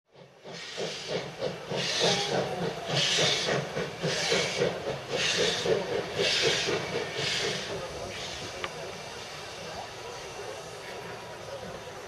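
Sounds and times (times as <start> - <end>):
steam locomotive puffing: 0.1 - 11.9.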